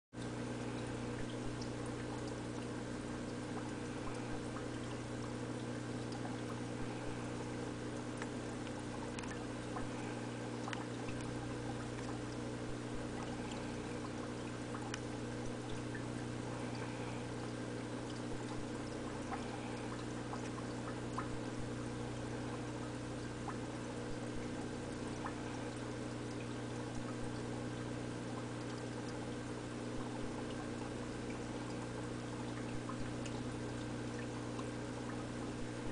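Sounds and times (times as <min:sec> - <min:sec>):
aquarium filter humming: 0:00.2 - 0:35.9
water trickling and pouring: 0:00.6 - 0:27.4
faint small clicks: 0:10.7 - 0:11.3.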